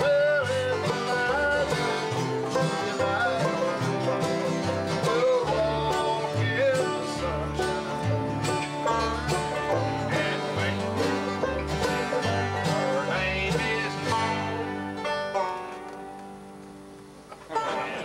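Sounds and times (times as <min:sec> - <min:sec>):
man singing: 0:00.0 - 0:08.6, 0:10.0 - 0:14.9
banjo: 0:00.0 - 0:16.4, 0:17.3 - 0:18.0
bass: 0:00.0 - 0:17.6
acoustic guitar: 0:00.0 - 0:18.0.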